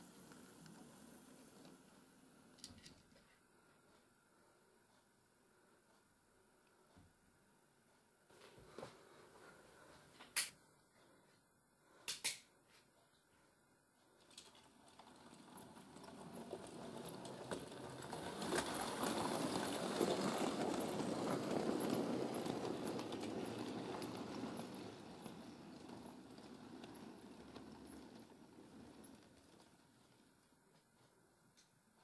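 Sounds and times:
model train motor and wheels rumbling: 0:00.0 - 0:03.0, 0:14.1 - 0:30.7.

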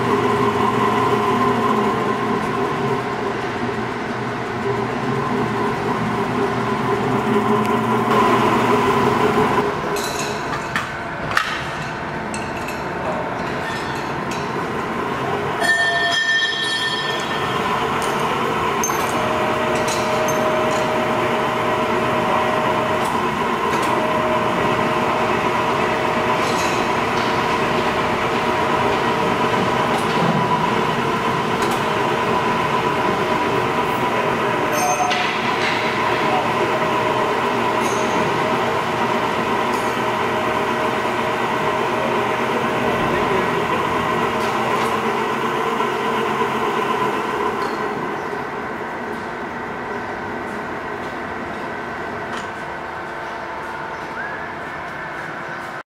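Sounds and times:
electric motor humming and whining: 0:17.2 - 0:34.7.

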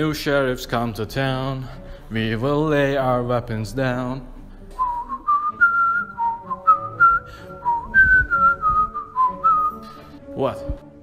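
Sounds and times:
man whistling a tune: 0:04.7 - 0:10.2.

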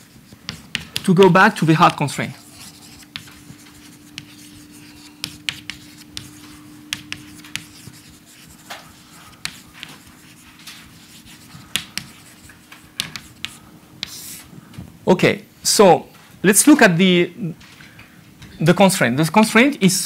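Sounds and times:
chalk tapping and scratching: 0:00.0 - 0:14.5.

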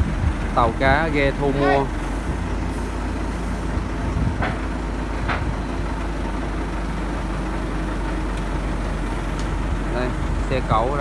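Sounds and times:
diesel engine rumbling: 0:00.0 - 0:11.0
short knocks: 0:04.3 - 0:05.6.

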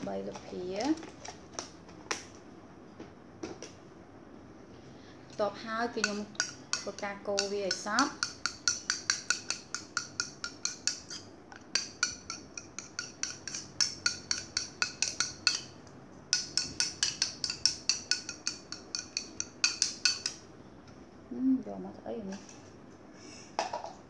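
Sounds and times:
metal spoon clinking in ceramic bowl: 0:06.0 - 0:20.4.

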